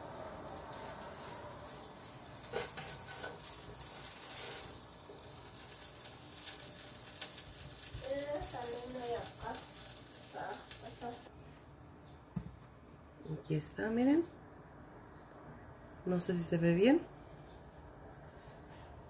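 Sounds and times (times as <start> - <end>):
vegetables sizzling in oil: 0.0 - 11.3.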